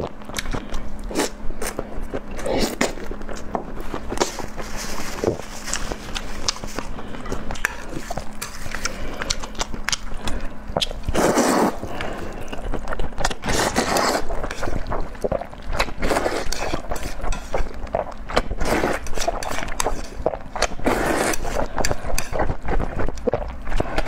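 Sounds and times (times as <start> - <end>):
chewing with wet mouth clicks: 7.4 - 11.2, 11.9 - 20.8
slurping noodles: 11.0 - 24.0.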